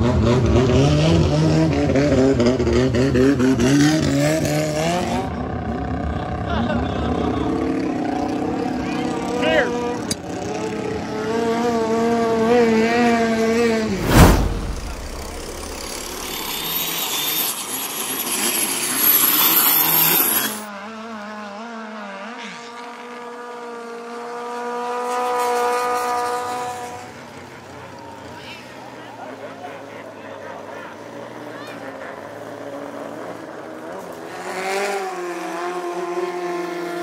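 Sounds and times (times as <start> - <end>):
high engine whine: 13.7 - 20.7
loud bang: 13.9 - 16.8.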